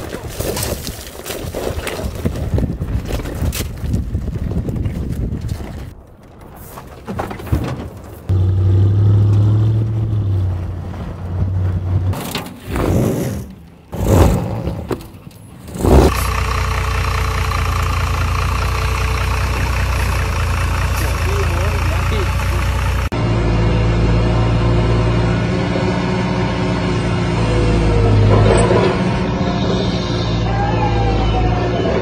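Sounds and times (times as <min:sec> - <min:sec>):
tyres crunching on rock: 0:00.0 - 0:08.3
steady engine-like hum: 0:15.7 - 0:32.0.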